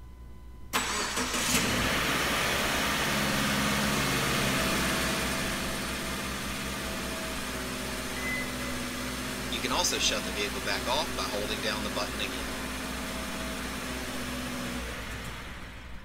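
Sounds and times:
car starter cranking: 0:00.8 - 0:02.6
car engine idling: 0:00.8 - 0:16.0.

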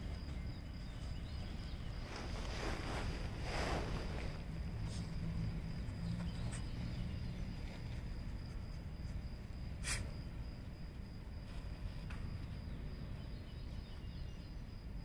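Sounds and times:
low rumble: 0:00.0 - 0:09.6.

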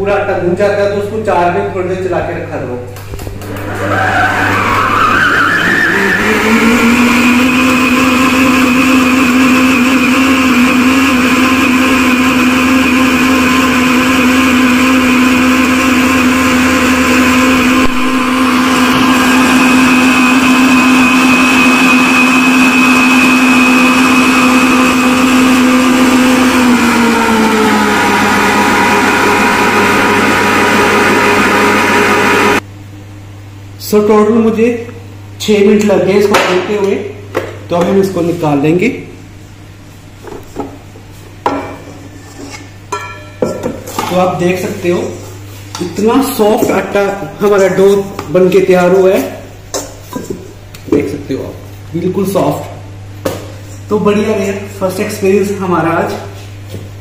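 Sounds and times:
stand mixer motor whining: 0:03.4 - 0:32.6.

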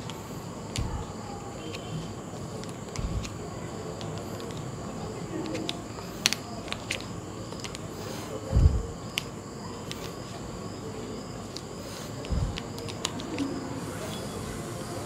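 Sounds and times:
dull low thumps: 0:03.0 - 0:03.3, 0:08.5 - 0:09.0, 0:12.3 - 0:12.6.

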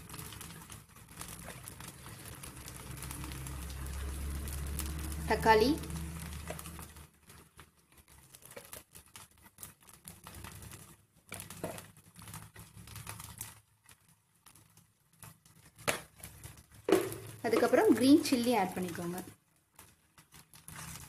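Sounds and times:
light crackles and soft taps: 0:05.9 - 0:18.0, 0:18.9 - 0:21.0.

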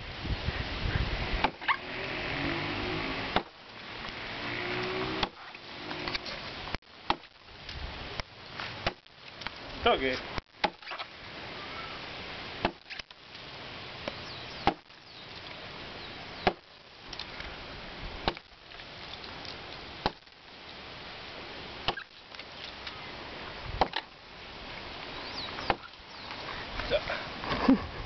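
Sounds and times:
axe chopping into log: 0:01.4 - 0:01.7, 0:03.3 - 0:03.6, 0:05.1 - 0:05.4, 0:07.1 - 0:07.3, 0:08.8 - 0:09.1, 0:10.6 - 0:11.0, 0:12.6 - 0:13.0, 0:14.6 - 0:14.9, 0:16.4 - 0:16.6, 0:18.2 - 0:18.5, 0:21.9 - 0:22.1, 0:23.8 - 0:24.1, 0:25.6 - 0:25.9.

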